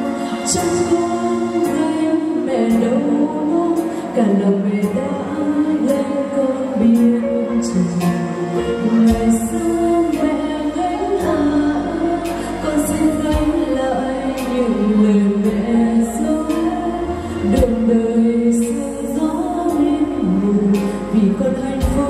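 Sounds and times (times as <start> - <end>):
instrumental accompaniment: 0.0 - 22.0
woman singing a slow ballad: 0.0 - 22.0
held low bass: 7.7 - 22.0.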